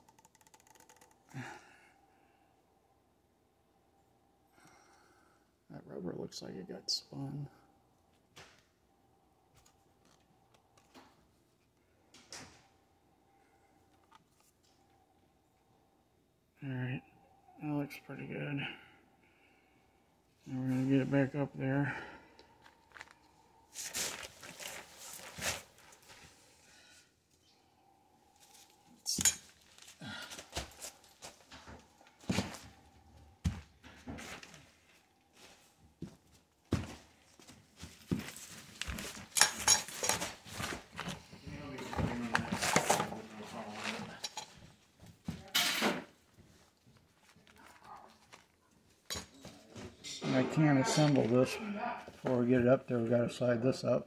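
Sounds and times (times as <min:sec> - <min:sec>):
rustling: 0:22.6 - 0:26.8, 0:46.2 - 0:49.7.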